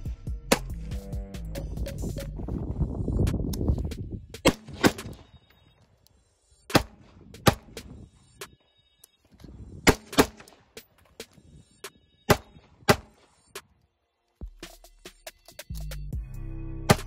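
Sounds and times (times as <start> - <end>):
pistol shots with echo: 4.4 - 5.3, 6.7 - 7.9, 9.8 - 10.7, 12.3 - 13.2.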